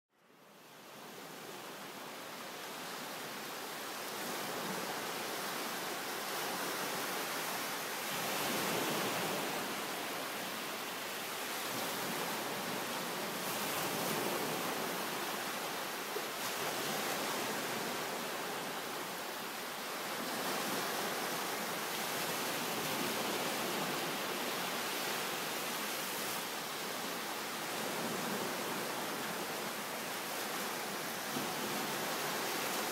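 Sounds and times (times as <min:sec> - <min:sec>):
small waves washing onto beach: 0:00.4 - 0:32.9.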